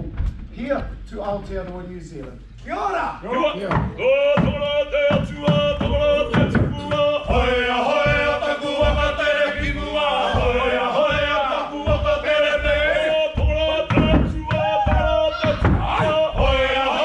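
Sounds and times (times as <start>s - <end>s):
men chanting and singing: 0.8s - 17.0s
low beat of thuds: 3.6s - 17.0s.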